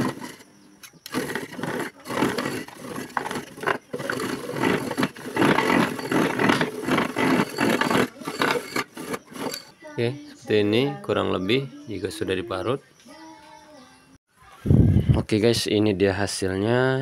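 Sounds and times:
electric ice shaver grinding: 0:00.0 - 0:00.4, 0:01.0 - 0:09.7.

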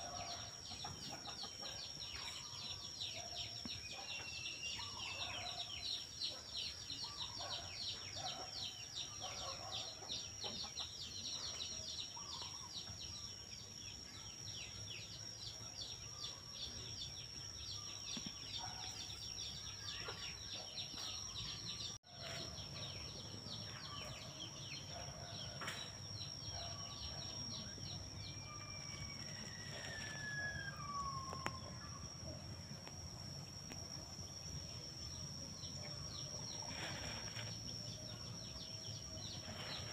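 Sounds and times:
high-pitched insect whine: 0:26.9 - 0:39.6.

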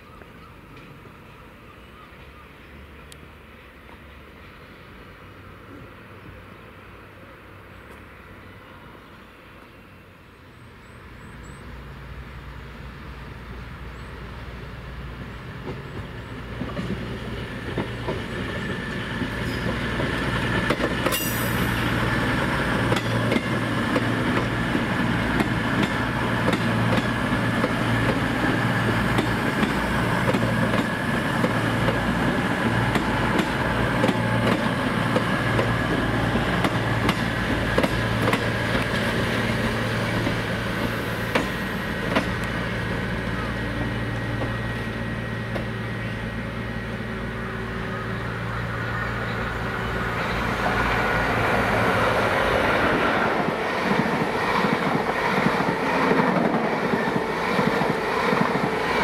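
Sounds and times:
train engine hum and whine: 0:00.0 - 0:59.0
train wheels clicking on rails: 0:15.1 - 0:45.8, 0:50.2 - 0:59.0.

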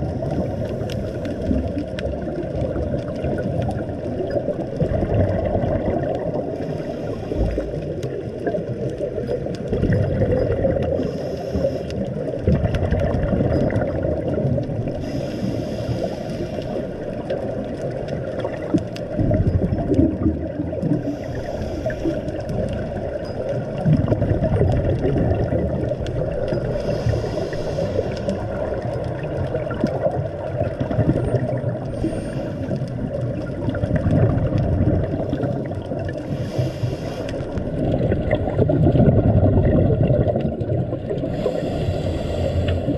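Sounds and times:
underwater churning rumble: 0:00.0 - 0:42.9
faint hiss: 0:10.9 - 0:12.0, 0:15.0 - 0:17.0, 0:21.1 - 0:22.4, 0:26.6 - 0:28.4, 0:41.3 - 0:42.9.

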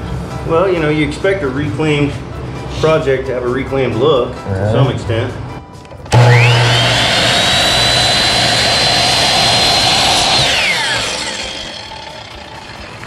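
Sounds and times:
miter saw cutting wood: 0:06.1 - 0:13.0
saw blade spinning down: 0:06.1 - 0:13.0.

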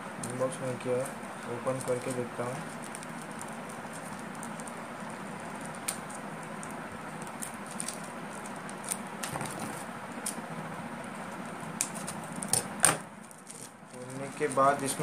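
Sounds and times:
plastic packet crinkling: 0:01.6 - 0:09.8.

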